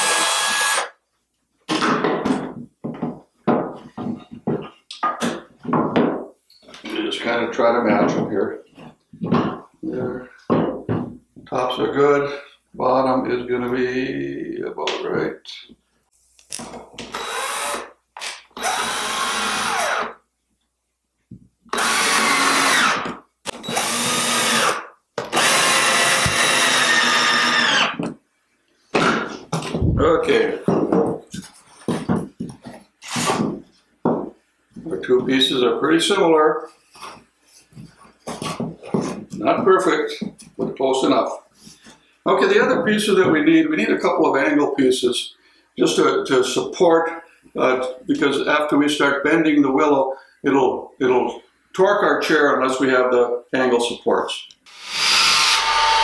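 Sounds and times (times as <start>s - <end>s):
cordless drill running: 0.0s - 0.9s, 17.1s - 17.9s, 18.6s - 20.1s, 21.7s - 28.0s, 54.7s - 56.0s
wooden poles knocking on workbench: 1.7s - 6.3s, 9.2s - 9.7s, 10.5s - 11.5s, 30.6s - 31.3s, 33.4s - 34.4s.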